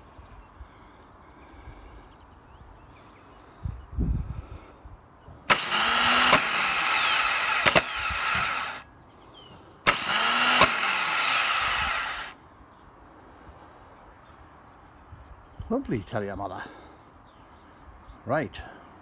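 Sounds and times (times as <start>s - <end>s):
starter motor spinning: 5.5s - 8.8s, 9.8s - 12.4s.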